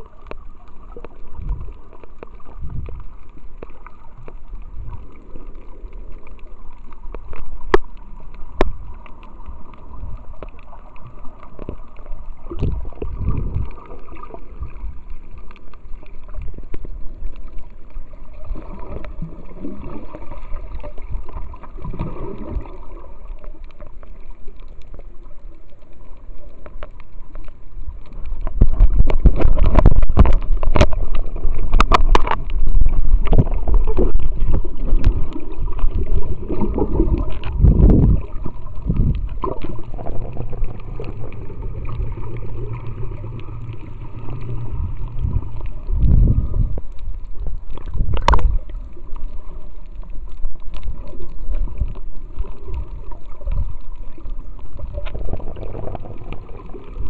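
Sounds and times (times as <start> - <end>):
muffled underwater swishing: 0.0 - 57.0
camera housing rubbing rumble: 28.4 - 35.2.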